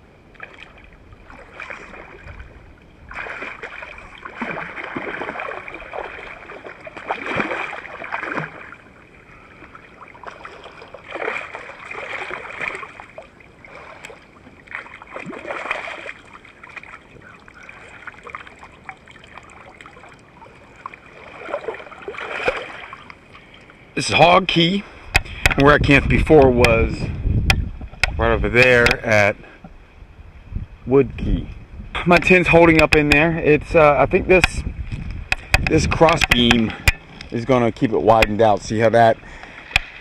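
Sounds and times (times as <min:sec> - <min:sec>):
water sloshing: 0:00.3 - 0:24.3
fish splashing at surface: 0:03.1 - 0:08.8, 0:10.0 - 0:20.2, 0:20.8 - 0:23.1.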